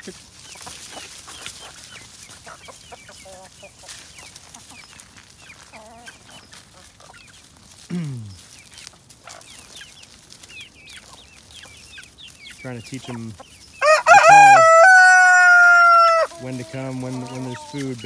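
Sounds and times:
chickens clucking: 0:00.0 - 0:18.0
trilled bird calls: 0:08.4 - 0:14.0.

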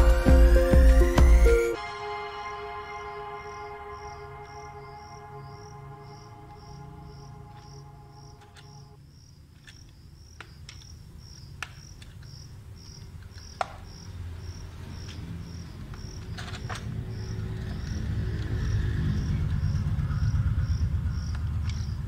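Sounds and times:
cricket chirping: 0:01.8 - 0:22.0
plastic toy clicks: 0:09.5 - 0:13.8, 0:15.8 - 0:17.0
low rumble: 0:16.9 - 0:22.0.

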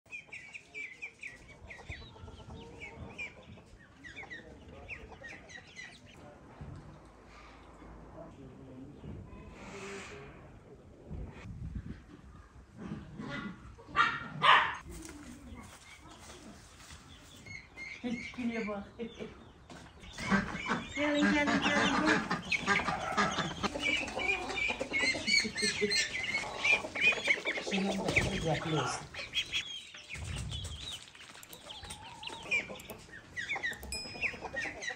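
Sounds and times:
birds chirping: 0:00.0 - 0:06.4, 0:14.4 - 0:34.9
chickens clucking: 0:00.1 - 0:08.0, 0:08.9 - 0:34.9.

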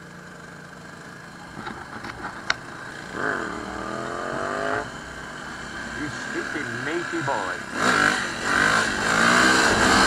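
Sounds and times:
dirt bike engine revving: 0:02.8 - 0:10.0.

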